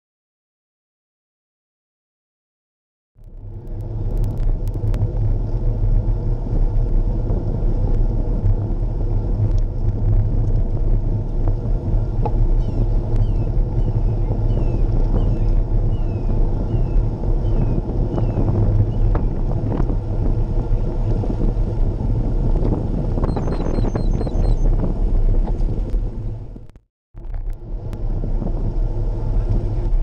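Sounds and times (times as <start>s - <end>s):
sharp clicks: 3.2s - 5.0s
wind buffeting microphone: 3.2s - 30.0s.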